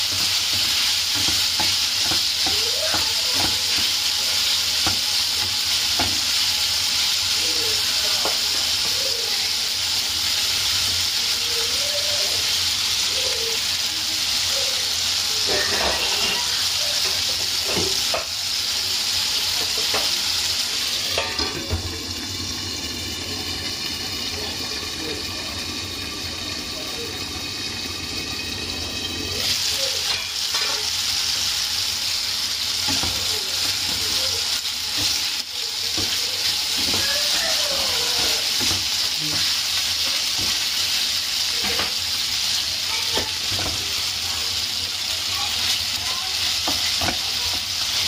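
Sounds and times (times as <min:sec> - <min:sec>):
chicken sizzling in a frying pan: 0:00.0 - 0:48.0
spatula scraping a pan: 0:15.4 - 0:18.3.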